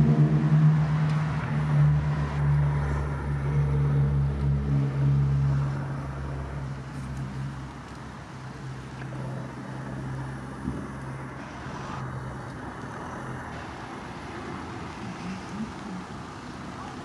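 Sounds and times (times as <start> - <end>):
traffic rush: 0.0 - 17.0.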